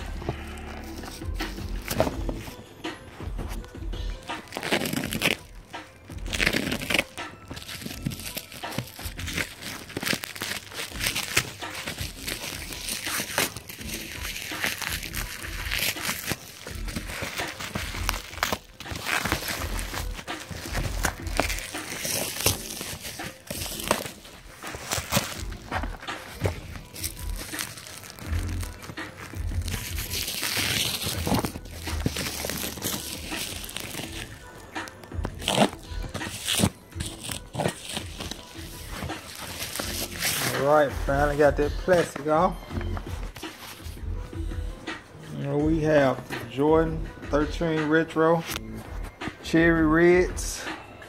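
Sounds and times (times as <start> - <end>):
plastic packaging crinkling: 4.4 - 5.6, 6.2 - 40.8.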